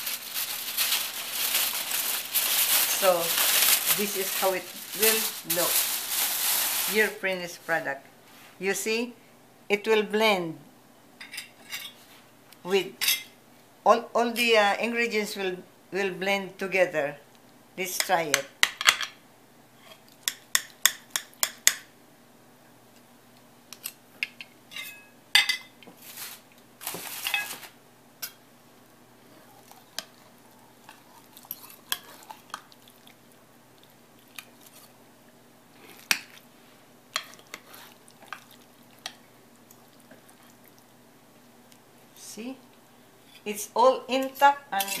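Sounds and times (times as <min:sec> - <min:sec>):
cutlery clinking on ceramic dish: 0:24.2 - 0:25.7.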